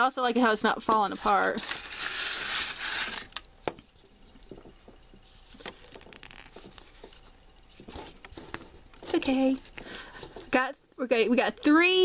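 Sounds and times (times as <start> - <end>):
loud crinkling rustle: 1.2 - 3.4.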